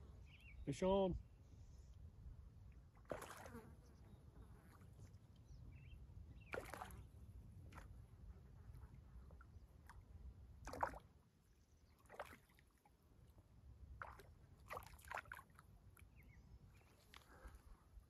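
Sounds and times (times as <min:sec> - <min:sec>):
water splashing and sloshing: 0:02.7 - 0:03.6, 0:06.4 - 0:08.1, 0:09.2 - 0:17.8.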